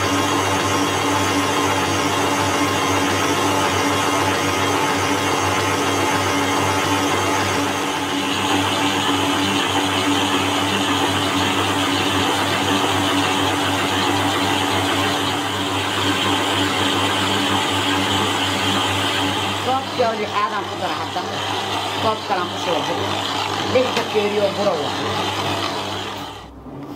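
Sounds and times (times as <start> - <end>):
electric mixer motor hum: 0.0 - 26.9.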